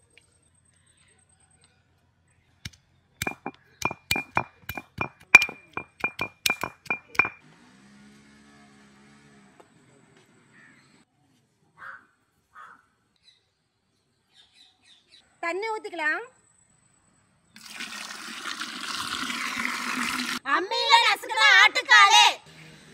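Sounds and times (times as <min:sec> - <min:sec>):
metal clinking against metal: 0:03.2 - 0:07.4.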